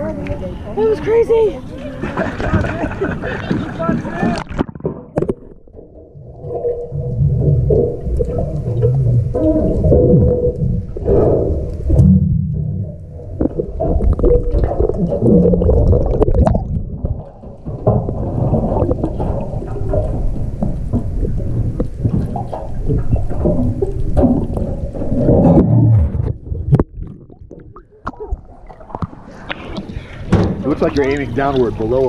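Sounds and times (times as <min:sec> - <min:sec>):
muffled underwater rumble and gurgle: 0:00.0 - 0:32.0
small underwater clicks: 0:04.4 - 0:31.1.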